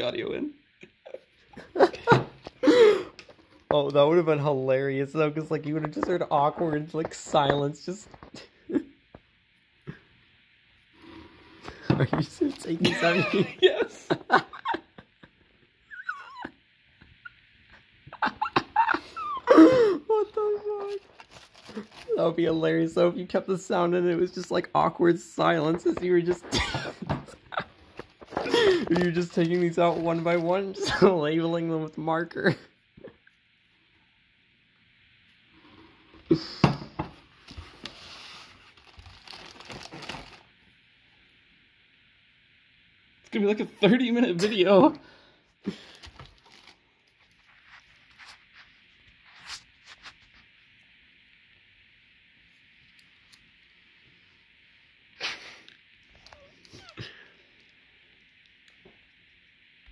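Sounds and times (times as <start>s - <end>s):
dog whining: 15.9s - 16.6s
plastic shrink wrap crinkling: 20.1s - 23.0s, 27.3s - 31.1s, 37.3s - 40.7s, 45.7s - 50.6s.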